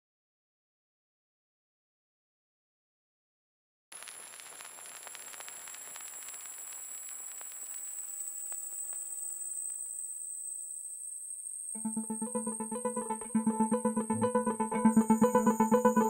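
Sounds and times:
crackling fizzing clicks: 3.9 - 10.8
faint high whine: 4.0 - 16.0.

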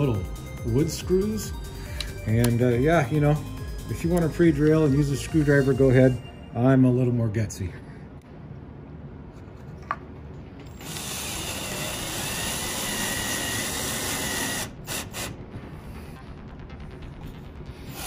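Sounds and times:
power drill driving screw into wood: 10.7 - 15.3.

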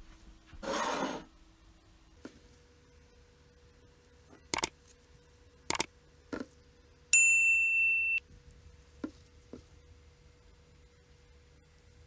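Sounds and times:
short sharp clicks: 5.7 - 5.9
bright bell ding: 7.2 - 8.2.

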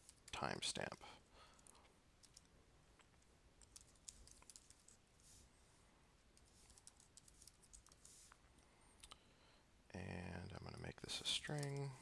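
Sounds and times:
faint keyboard typing: 0.0 - 5.4, 6.3 - 9.2, 11.2 - 12.0.

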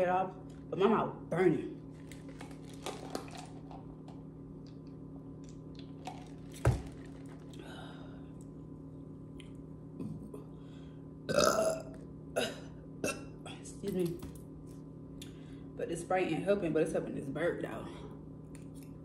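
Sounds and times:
steady low hum: 0.0 - 19.0
burp: 11.3 - 13.4.

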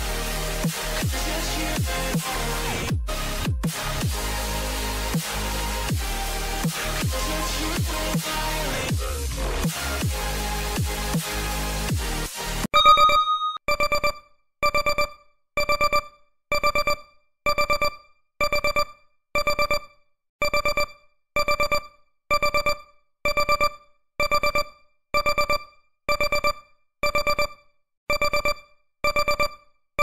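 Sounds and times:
electronic alarm beeping: 12.7 - 29.7.

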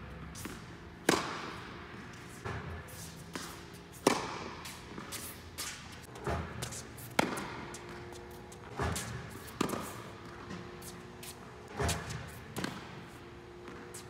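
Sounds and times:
racket striking tennis ball: 0.3 - 14.0
tennis ball thuds: 0.4 - 2.6, 3.3 - 10.9, 11.6 - 13.0.

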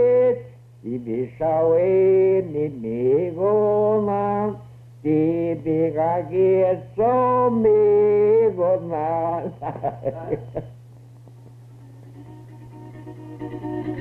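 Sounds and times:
man singing a slow chant: 0.0 - 9.7
steady low hum: 0.0 - 14.0.

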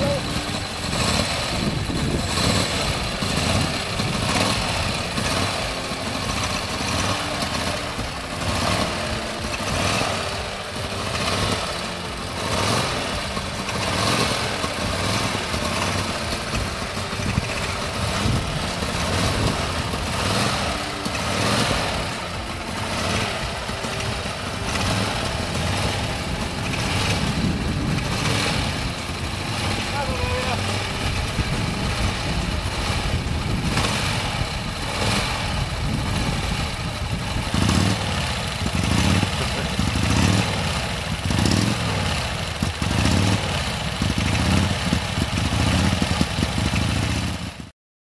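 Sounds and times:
racing car engine revving: 0.0 - 47.7.

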